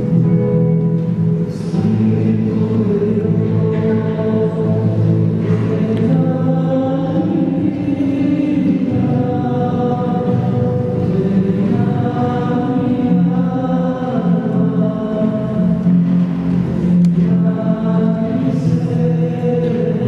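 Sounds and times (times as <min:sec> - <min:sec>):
choir singing slowly: 0:00.0 - 0:20.0.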